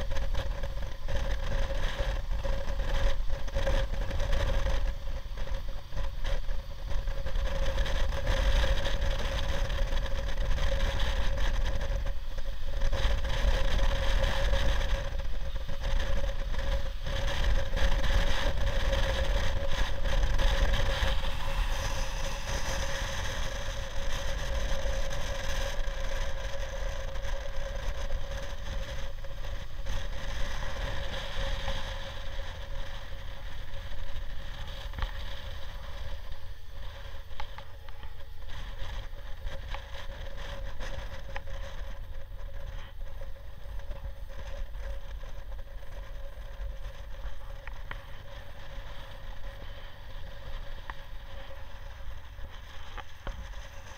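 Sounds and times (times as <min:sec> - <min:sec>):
motorcycle engine drone: 0:00.0 - 0:53.9
wind rushing over microphone: 0:00.0 - 0:53.9.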